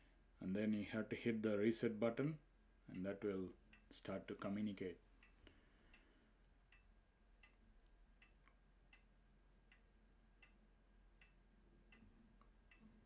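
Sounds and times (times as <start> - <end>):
faint ticks: 5.2 - 13.0.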